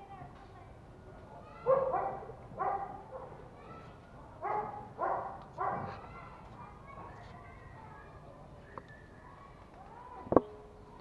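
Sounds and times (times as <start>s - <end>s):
puppy barking: 1.6s - 3.4s, 4.4s - 6.0s.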